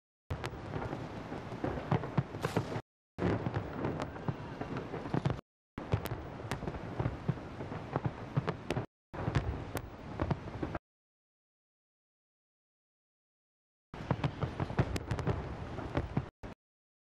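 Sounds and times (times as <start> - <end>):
fireworks bangs and crackles: 0.3 - 10.8, 14.0 - 16.5
low fireworks booms: 0.3 - 10.8, 14.0 - 16.6.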